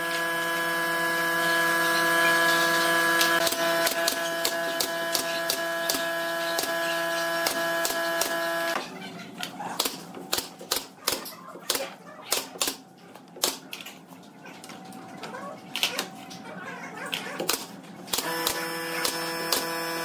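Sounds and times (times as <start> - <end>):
steady hum: 0.0 - 11.2
nail gun firing into boards: 3.4 - 6.8, 7.4 - 8.5, 9.8 - 12.8, 17.4 - 19.8.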